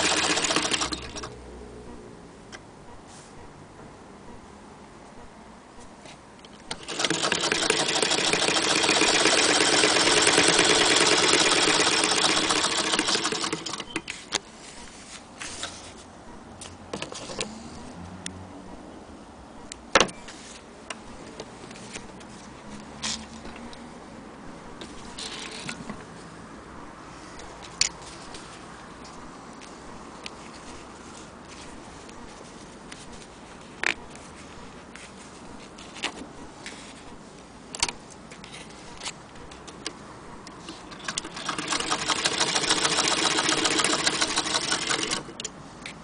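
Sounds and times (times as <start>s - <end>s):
sewing machine clatter: 0.0s - 1.3s, 6.7s - 14.2s, 40.7s - 45.3s.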